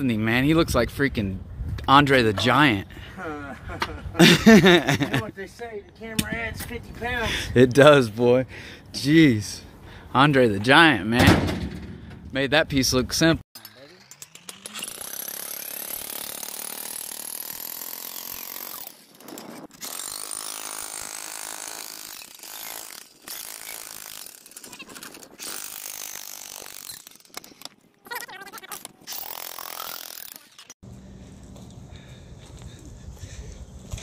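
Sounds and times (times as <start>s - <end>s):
jackhammer chiselling concrete: 13.6s - 24.8s.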